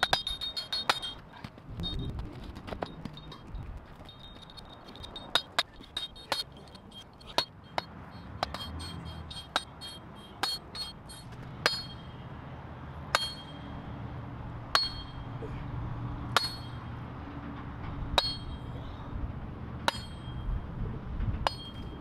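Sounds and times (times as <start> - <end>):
hammer striking steel: 0.0 - 1.3, 4.1 - 12.2, 13.1 - 13.8, 14.7 - 15.4, 16.3 - 17.0, 18.1 - 18.8, 19.8 - 20.5, 21.4 - 22.0.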